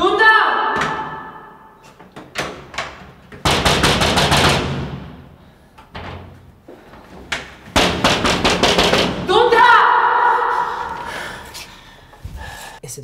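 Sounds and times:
fist pounding on glass door: 3.4s - 5.2s, 7.7s - 9.3s.

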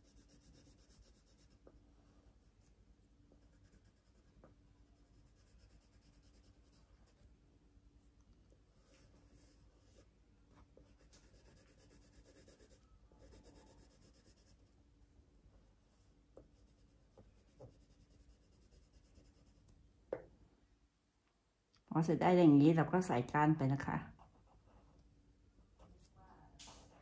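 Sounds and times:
pencil scratching on paper: 0.0s - 2.7s, 3.3s - 7.2s, 8.7s - 14.7s, 15.6s - 19.7s, 24.1s - 25.0s.

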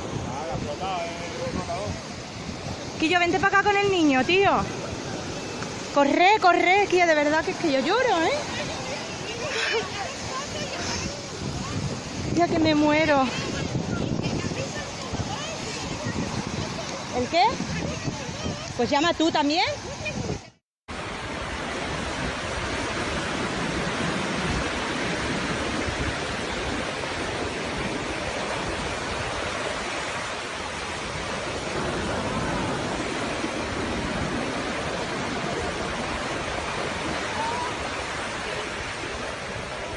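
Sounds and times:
surf breaking on beach: 0.0s - 39.9s.

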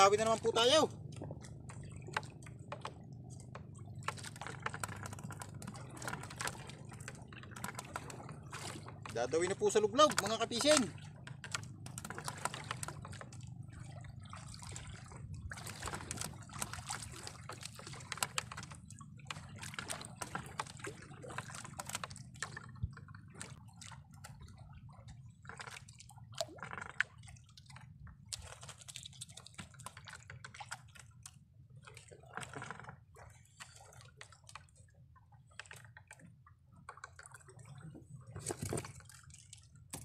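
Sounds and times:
waves lapping against boat hull: 0.0s - 40.0s.

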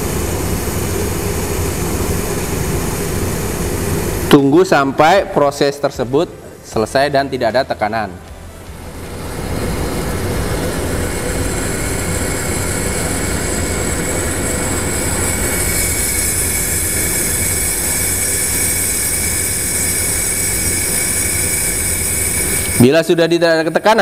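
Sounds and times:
low machine hum: 0.0s - 24.0s
pressure hissing from valve: 9.0s - 23.8s.

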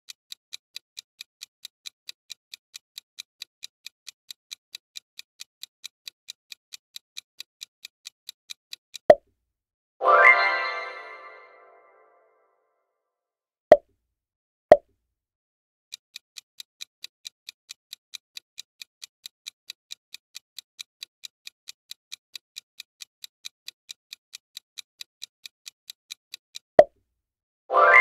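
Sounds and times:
clock ticking: 0.1s - 9.1s, 15.9s - 26.7s
bright chime: 10.0s - 12.1s, 27.7s - 28.0s.

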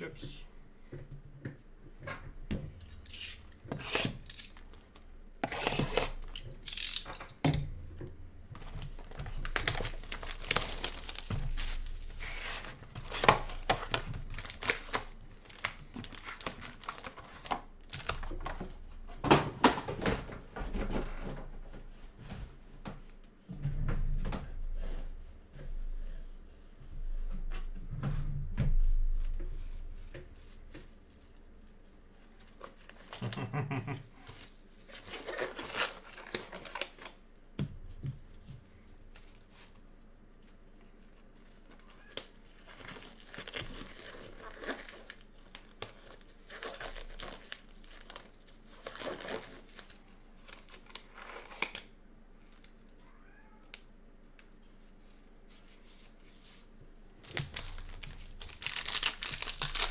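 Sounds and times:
plastic packaging crinkling: 8.6s - 18.5s, 41.8s - 51.9s, 57.2s - 59.9s.

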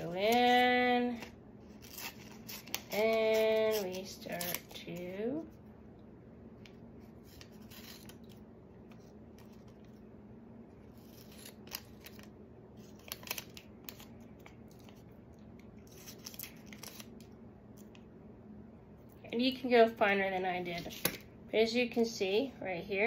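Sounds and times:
scissors snipping paper: 1.8s - 5.1s, 11.0s - 15.0s
paper crinkling: 7.1s - 10.0s, 10.8s - 18.0s.

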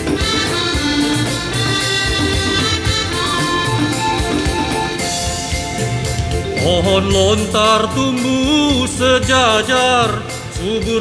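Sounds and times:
instrumental music with steady beat: 0.0s - 11.0s.

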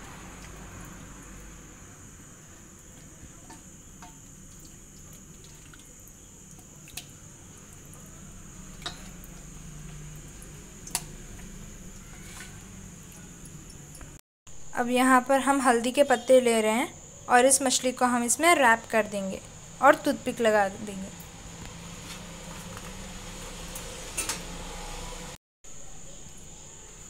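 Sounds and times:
wet squishing of batter: 2.9s - 14.2s.

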